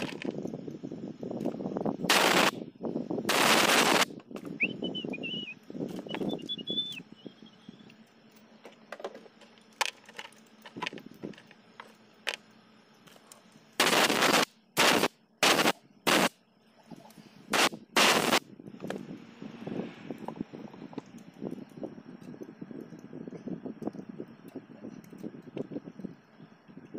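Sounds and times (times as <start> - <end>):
power wrench rattling bursts: 2.1 - 2.5, 3.3 - 4.1, 13.8 - 16.3.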